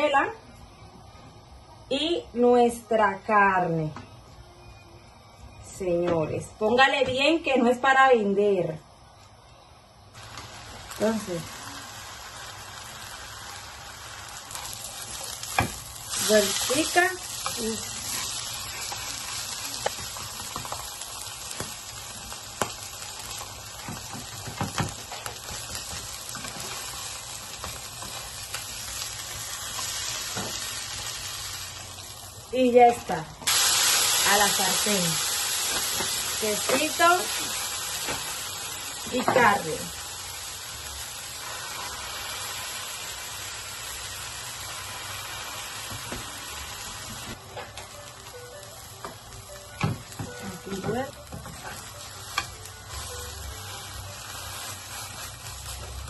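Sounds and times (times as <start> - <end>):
tortilla sizzling in oil: 10.2 - 56.0.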